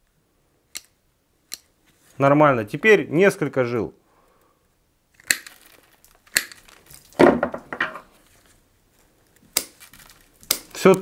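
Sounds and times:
pliers snipping cable: 0:00.7 - 0:01.7, 0:05.2 - 0:06.7, 0:10.4 - 0:11.0.

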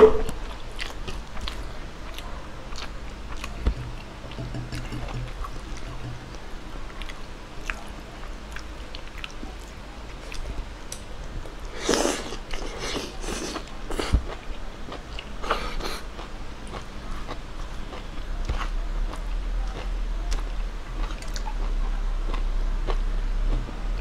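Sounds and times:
person chewing and biting: 0:00.5 - 0:06.4, 0:11.7 - 0:23.0.

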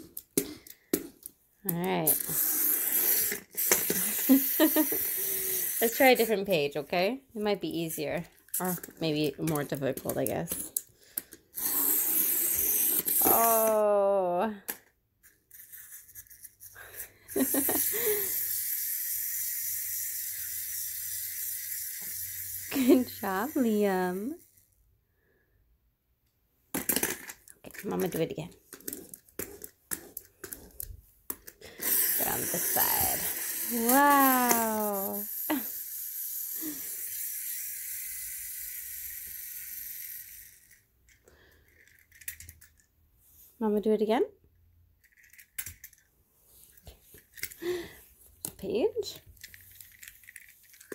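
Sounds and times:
clockwork motor whirring: 0:02.2 - 0:06.3, 0:31.8 - 0:40.8.

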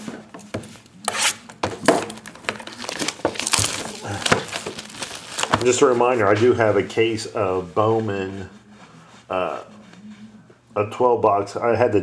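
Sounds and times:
plastic wrap crinkling and tearing: 0:01.1 - 0:06.8.

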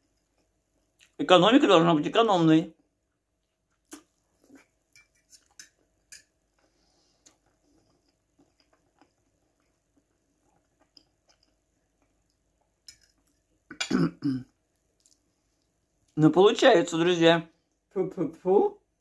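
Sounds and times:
faint chewing: 0:00.0 - 0:01.2, 0:02.8 - 0:13.7, 0:14.4 - 0:16.2.

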